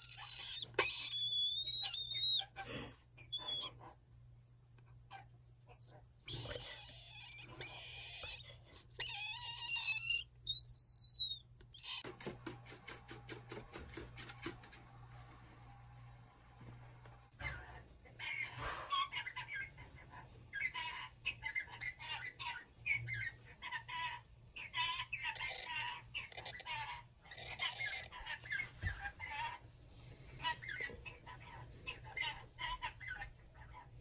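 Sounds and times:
squeaky whistles: 0.0s - 2.6s, 9.0s - 12.1s
cockatoo chick begging calls: 0.0s - 2.7s.

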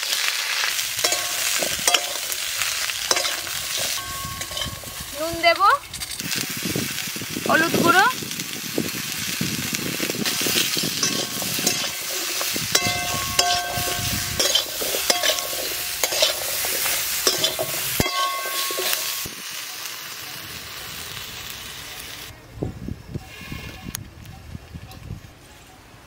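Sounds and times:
vegetables sizzling in oil: 0.0s - 22.4s
spatula scraping metal pan: 0.6s - 5.1s, 10.2s - 19.3s.

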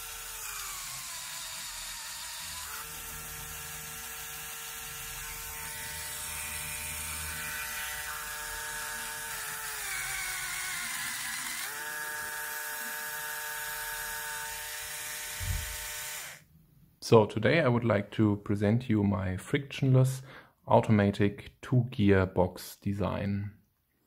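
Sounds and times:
electric motor whine: 0.0s - 16.4s.

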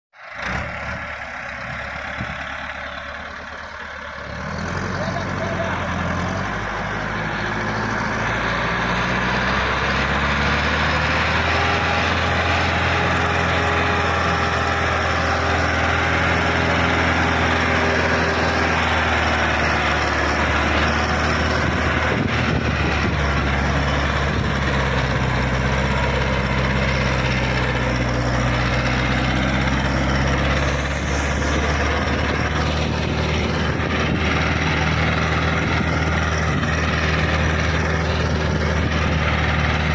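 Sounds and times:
tractor diesel engine under load: 0.1s - 39.9s.

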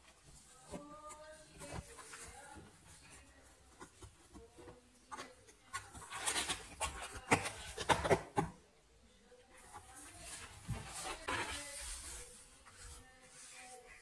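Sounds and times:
cat scratching cardboard box: 0.5s - 8.6s, 9.8s - 12.8s.

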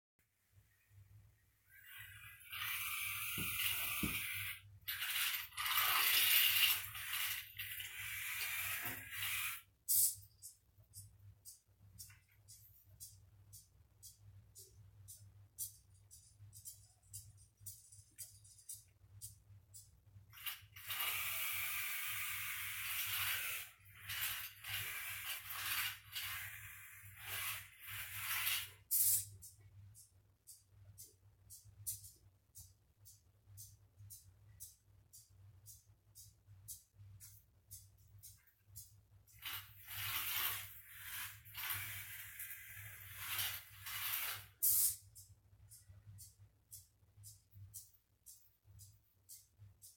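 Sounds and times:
small drive motors whirring: 1.8s - 10.2s, 20.4s - 29.3s, 39.4s - 44.6s.

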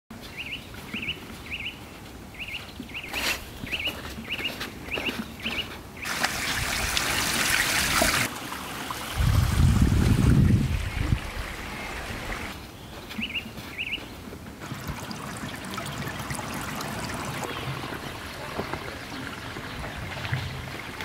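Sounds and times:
water splashing into stone basin: 6.0s - 12.5s, 14.6s - 21.0s
small bird chirping: 12.8s - 14.2s.

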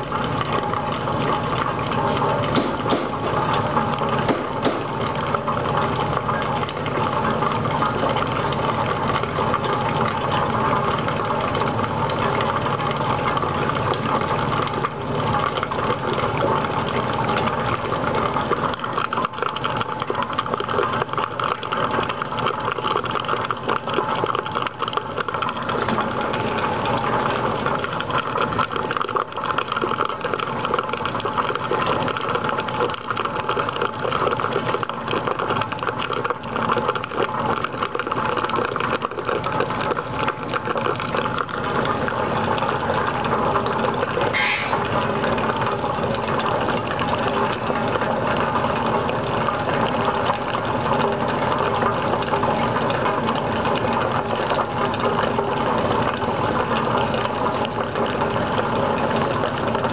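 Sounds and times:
hot water running into coffee brewer: 0.0s - 59.9s.

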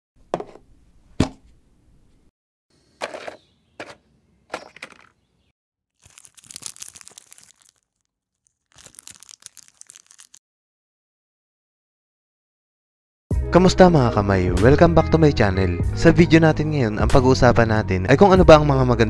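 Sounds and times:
plastic wrap crinkling: 6.0s - 10.4s.

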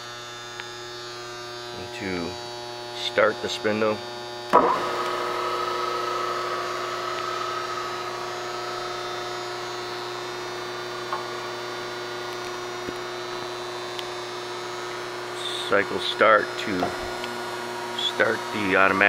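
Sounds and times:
high-pitched whine: 0.8s - 19.0s
grinding wheel humming: 4.1s - 19.0s.

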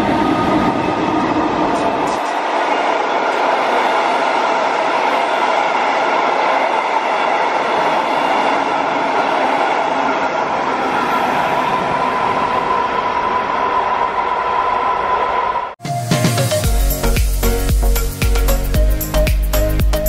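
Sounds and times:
train wheels running on rails: 0.0s - 15.8s.

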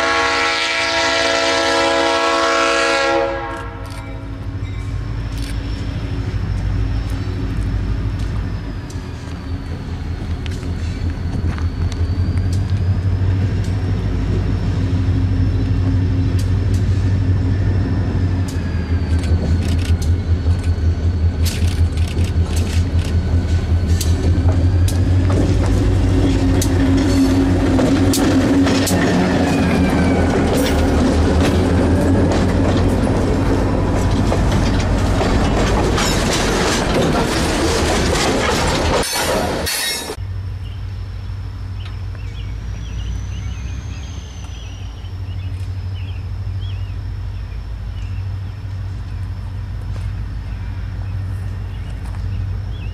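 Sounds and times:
diesel locomotive engine droning: 0.0s - 52.9s
train wheels clicking over rail joints: 3.5s - 40.2s.

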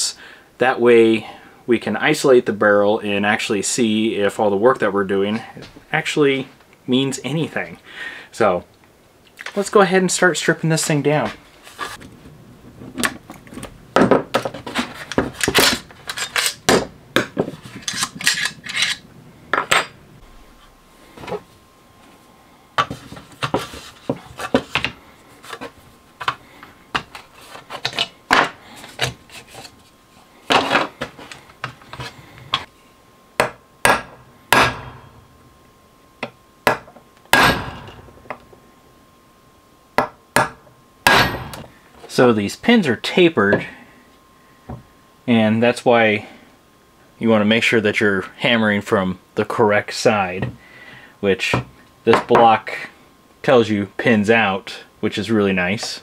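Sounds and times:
tools and gun parts clacking: 13.3s - 20.0s
hammer striking a punch: 33.4s - 35.2s, 36.7s - 38.4s, 40.0s - 41.7s.

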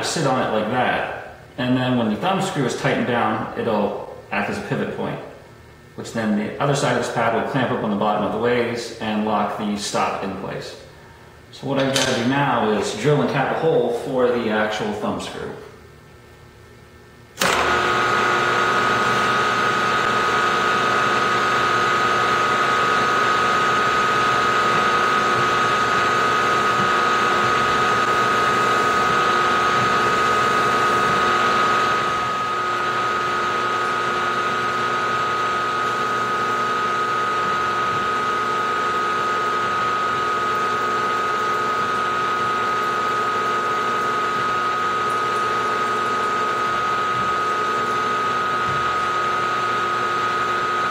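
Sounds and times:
drill boring metal: 17.4s - 50.9s
milling spindle whine: 17.4s - 50.9s.

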